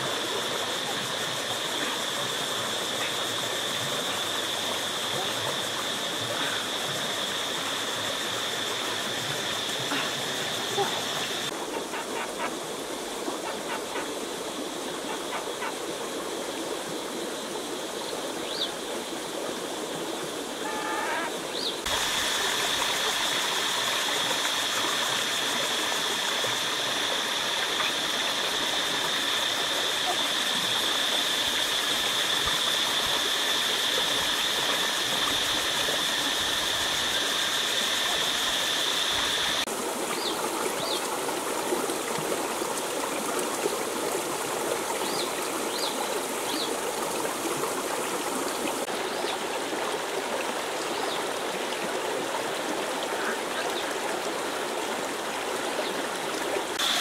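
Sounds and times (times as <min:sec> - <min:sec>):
river water running: 0:00.0 - 0:57.0
high-pitched drone: 0:20.6 - 0:39.7.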